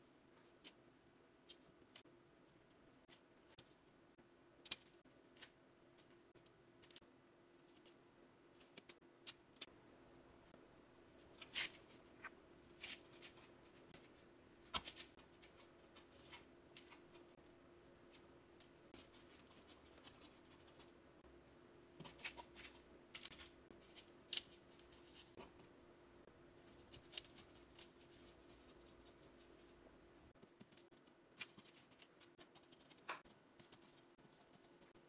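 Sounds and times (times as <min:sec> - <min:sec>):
faint room hum: 0:00.0 - 0:35.0.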